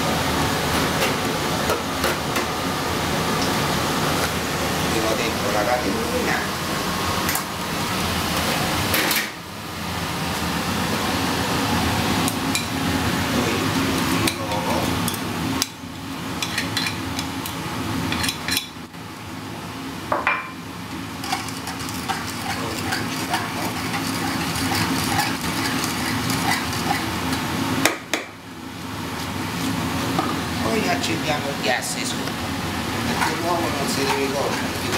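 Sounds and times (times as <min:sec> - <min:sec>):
steady background hum: 0:00.0 - 0:34.9
pan and utensils clattering: 0:21.2 - 0:27.4
fork scraping a frying pan: 0:21.2 - 0:27.5.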